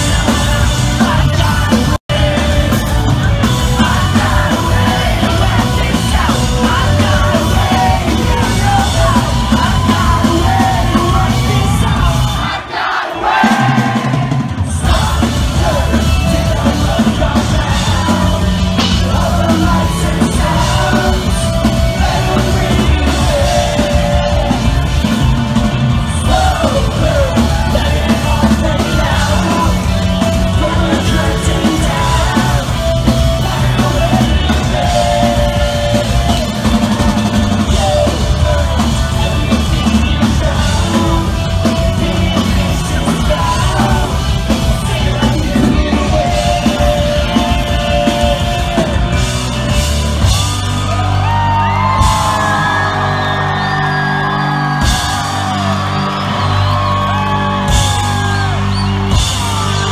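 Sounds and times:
person singing: 0:00.0 - 0:12.5, 0:13.5 - 0:49.6
drum kit: 0:00.0 - 0:59.9.

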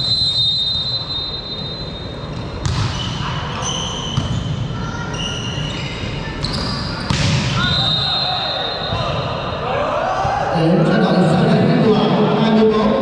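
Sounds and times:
shoes squeaking on court: 0:01.9 - 0:07.2
volleyball struck: 0:02.6 - 0:03.1, 0:07.0 - 0:07.7
crowd chatter: 0:03.1 - 0:13.0.

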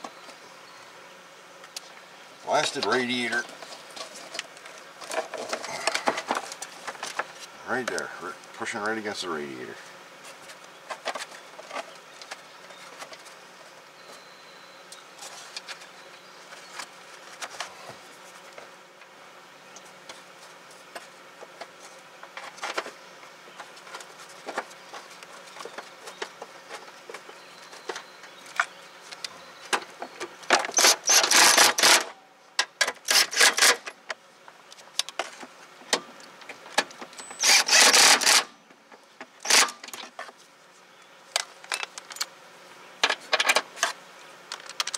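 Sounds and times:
electric ratchet running: 0:30.7 - 0:32.1, 0:37.3 - 0:38.5, 0:39.4 - 0:39.8.

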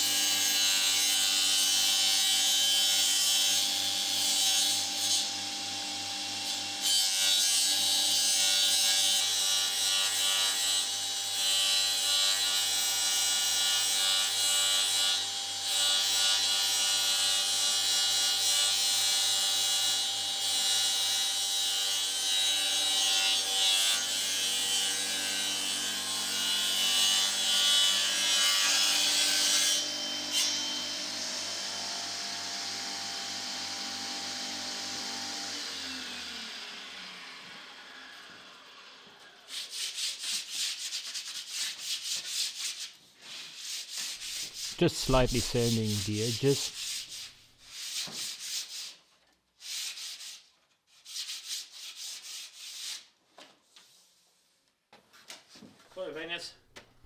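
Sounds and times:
saw blade cutting wood: 0:39.5 - 0:49.0.

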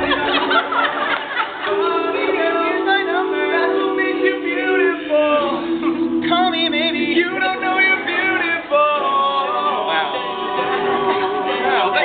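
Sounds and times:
lead vocal: 0:00.0 - 0:12.0
male a cappella group singing: 0:01.5 - 0:12.0.

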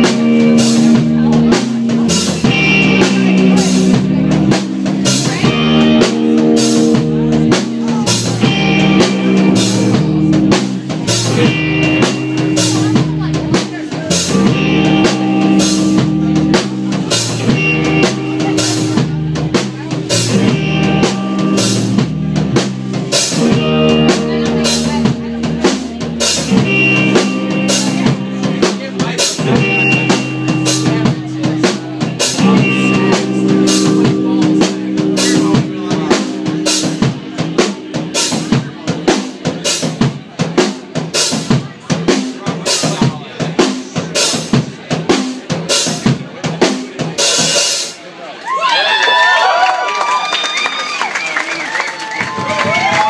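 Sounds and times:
sustained guitar chords: 0:00.0 - 0:40.0
drum kit beat: 0:00.0 - 0:48.1, 0:52.2 - 0:53.0
rock band playing: 0:00.0 - 0:53.0.

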